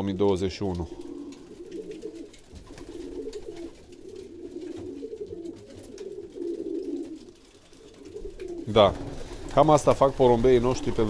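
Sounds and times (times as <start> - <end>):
faint clicks: 0.6 - 9.4
pigeons cooing: 0.6 - 11.0.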